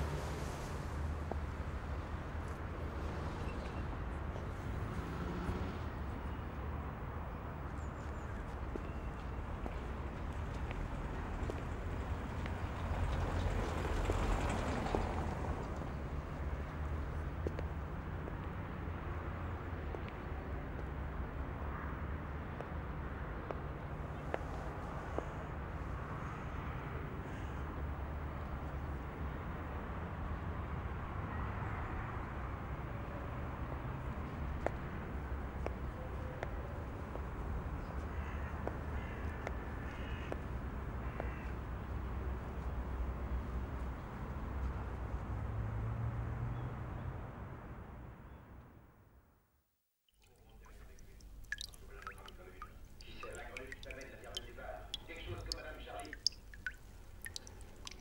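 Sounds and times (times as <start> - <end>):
low rumble of traffic: 0.0 - 49.6, 50.2 - 58.0
faint clicks: 50.2 - 58.0.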